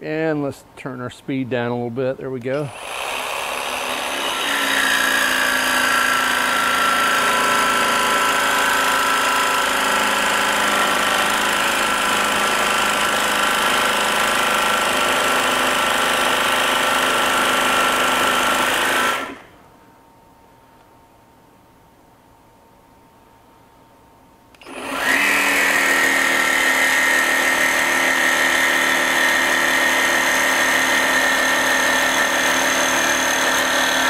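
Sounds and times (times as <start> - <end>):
jigsaw sawing through metal: 2.7 - 19.5, 24.6 - 34.0.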